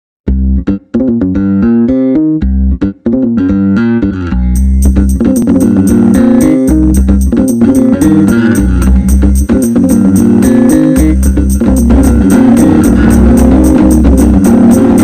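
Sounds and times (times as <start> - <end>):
plucked melody: 0.3 - 15.0
fast ticking beat: 4.6 - 15.0.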